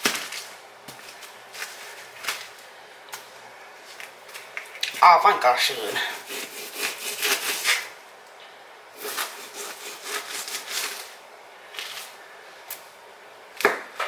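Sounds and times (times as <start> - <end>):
knife sawing through raw chicken: 6.0 - 7.9, 9.0 - 11.1.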